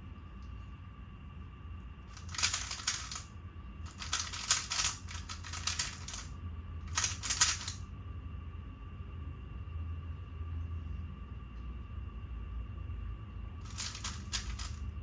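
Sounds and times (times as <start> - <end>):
puzzle cube clicking: 2.2 - 3.3, 3.9 - 6.3, 6.9 - 7.8, 13.7 - 14.8.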